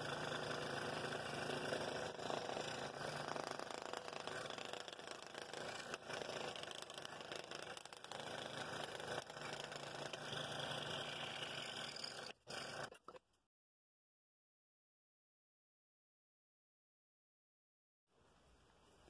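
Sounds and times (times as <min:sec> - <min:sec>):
scroll saw cutting wood: 0:00.0 - 0:13.2.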